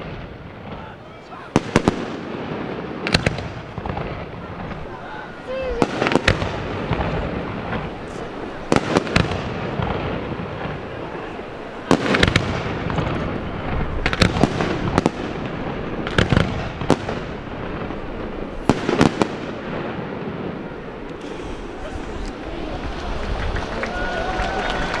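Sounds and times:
firework shells bursting: 1.6s - 23.8s.

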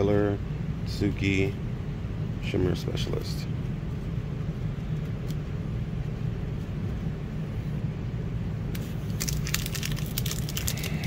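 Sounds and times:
low hum: 0.0s - 11.0s
foil wrapper crinkling: 8.8s - 11.0s.

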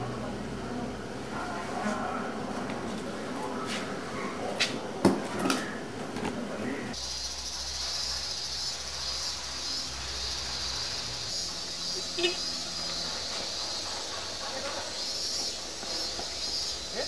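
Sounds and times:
insects chirping: 6.9s - 17.0s.

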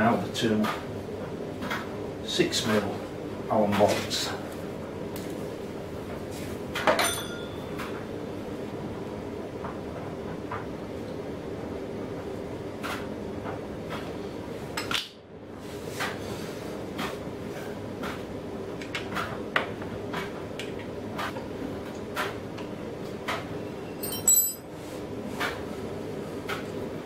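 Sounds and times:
steady low hum: 0.0s - 27.0s
ringing metallic clink: 7.0s - 7.7s, 24.0s - 24.6s.

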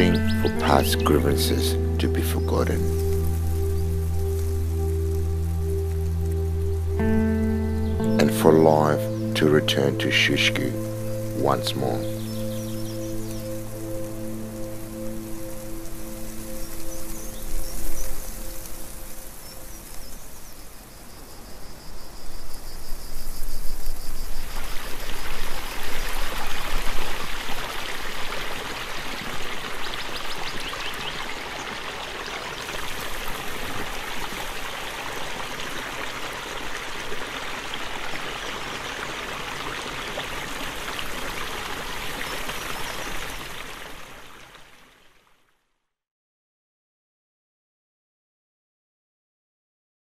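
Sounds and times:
stream running over stones: 8.2s - 21.1s, 23.1s - 45.6s.

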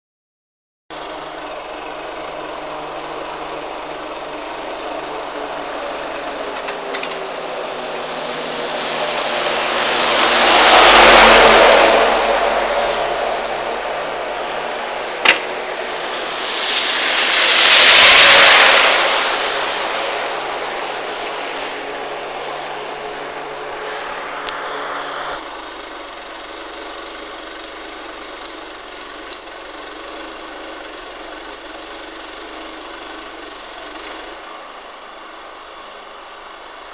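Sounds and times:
electrical arcing buzz: 0.9s - 36.9s
rushing noise: 4.0s - 28.9s.

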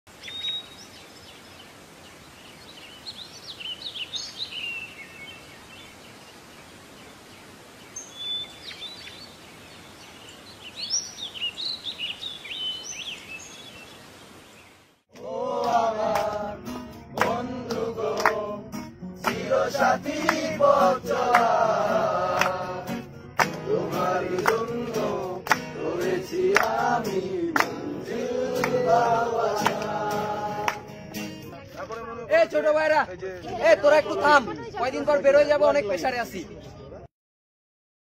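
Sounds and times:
birds chirping: 0.1s - 16.0s
steady background hiss: 0.1s - 31.5s
song with singing and percussion: 15.1s - 31.8s.

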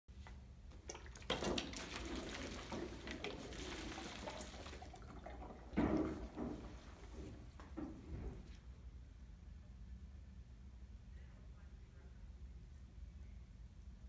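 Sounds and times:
water sloshing in bottles: 0.7s - 7.6s.

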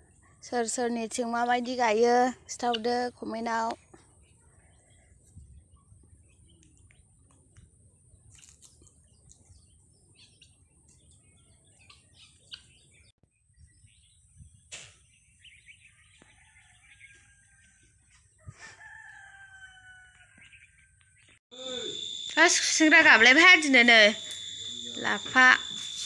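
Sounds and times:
rooster crowing: 18.4s - 20.6s.

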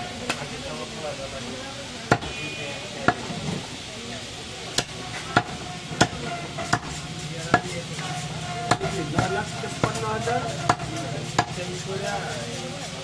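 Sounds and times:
cleaver chopping meat on wood: 2.1s - 2.4s, 4.8s - 7.8s, 8.7s - 11.8s.

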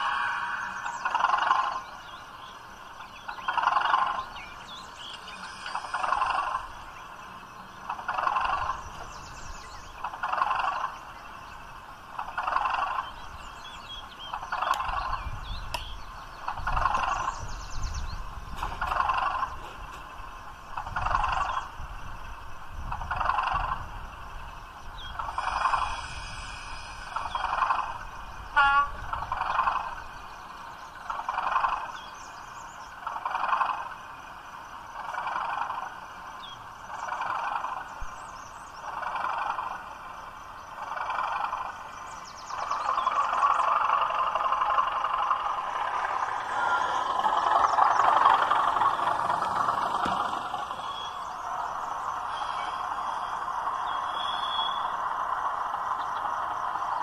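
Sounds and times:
model diesel locomotive idling: 0.0s - 57.0s
rattle of clicks: 14.2s - 17.4s, 18.5s - 21.8s, 40.8s - 52.2s.

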